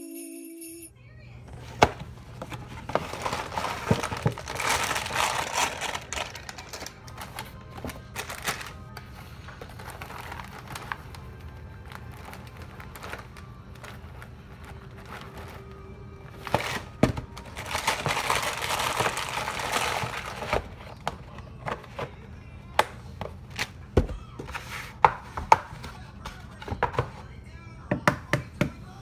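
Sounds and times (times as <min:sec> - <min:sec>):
packages knocking on countertop: 0:01.6 - 0:06.9, 0:16.5 - 0:20.6.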